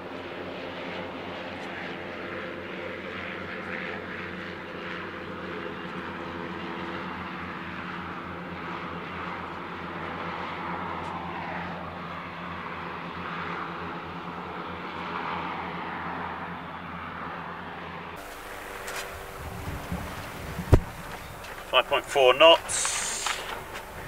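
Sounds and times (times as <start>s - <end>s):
hovercraft engines running: 0.0s - 24.0s
wind and sea hiss: 18.2s - 24.0s.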